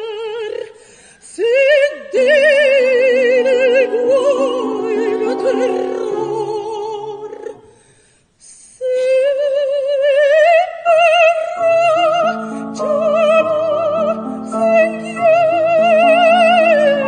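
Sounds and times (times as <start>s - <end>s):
female opera singer: 0.0s - 7.7s, 8.6s - 17.0s
grand piano: 2.2s - 7.8s, 11.2s - 17.0s.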